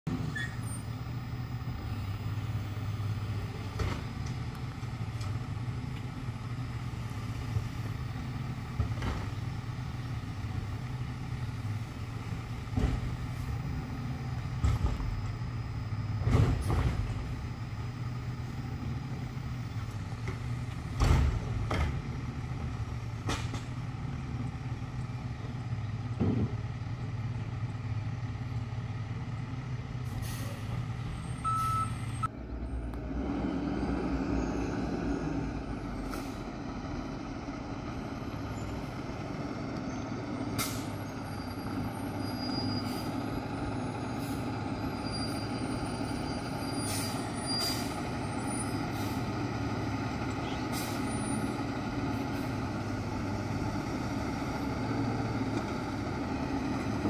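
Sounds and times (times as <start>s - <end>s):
clunks and knocks: 3.6s - 6.1s, 8.7s - 9.4s, 12.6s - 13.4s, 14.5s - 15.4s, 16.1s - 17.4s, 20.2s - 22.2s, 23.2s - 23.8s, 26.1s - 26.6s.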